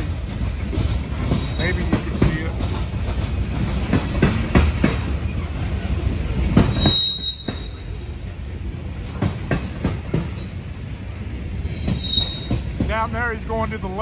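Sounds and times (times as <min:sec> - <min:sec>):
train cars rumbling on rails: 0:00.0 - 0:14.0
train wheel clacks: 0:00.0 - 0:14.0
high wheel squeal: 0:01.4 - 0:01.9, 0:06.7 - 0:08.0, 0:11.7 - 0:12.8.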